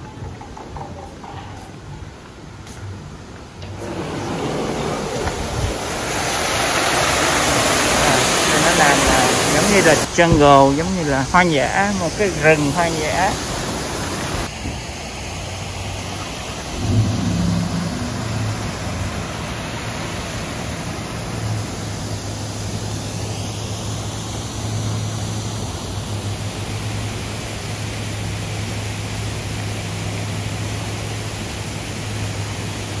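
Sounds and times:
steady rushing noise: 0:02.2 - 0:28.8
low steady hum: 0:14.4 - 0:33.0.

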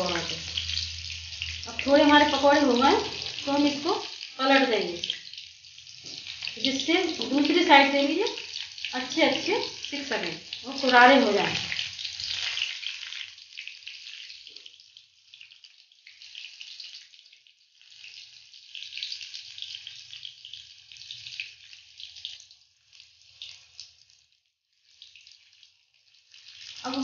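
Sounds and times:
oil sizzling and crackling: 0:00.0 - 0:27.0.

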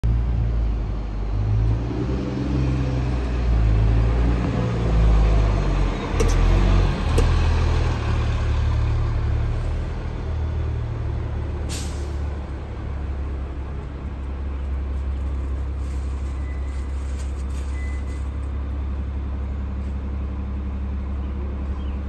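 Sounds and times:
bus engine rumbling: 0:00.0 - 0:22.0
air brakes hiss: 0:11.7 - 0:12.2.

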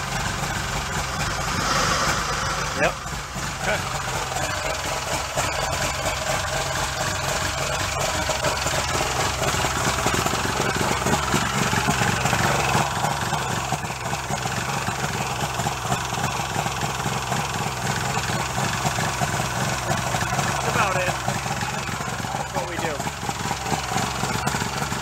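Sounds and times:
outboard motor idling: 0:00.0 - 0:25.0.

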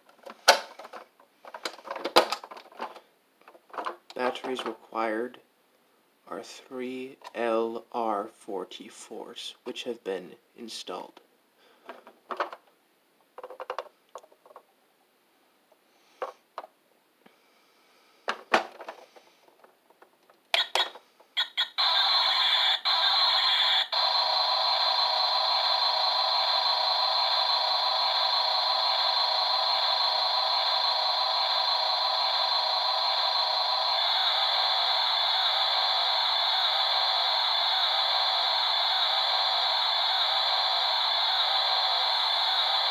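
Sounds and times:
electronic toy sound effect: 0:20.6 - 0:42.9.

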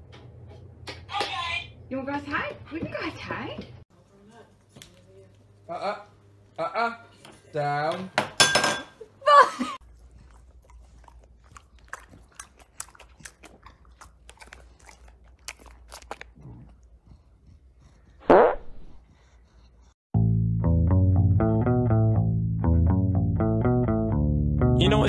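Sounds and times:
dog crunching treats: 0:10.2 - 0:16.6
music with bass guitar: 0:20.1 - 0:25.0.

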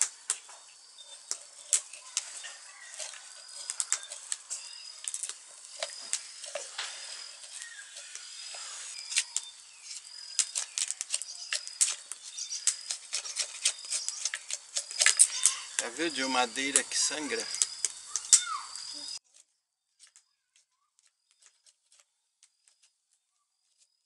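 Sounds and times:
knife scraping wood: 0:00.4 - 0:16.8.

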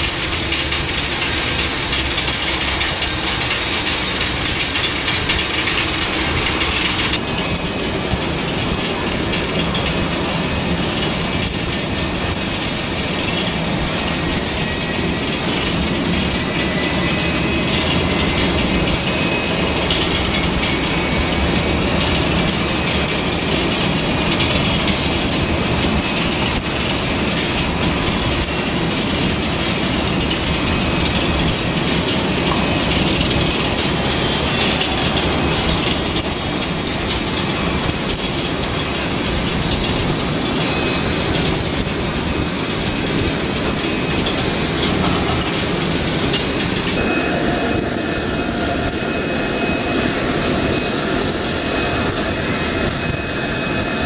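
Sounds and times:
jet engine rumble: 0:00.0 - 0:54.0
faint high whine: 0:43.5 - 0:54.0.

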